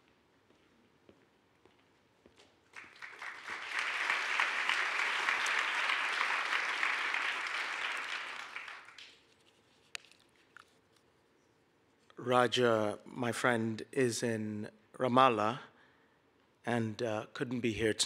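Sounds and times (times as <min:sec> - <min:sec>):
audience applauding: 0:02.7 - 0:09.2.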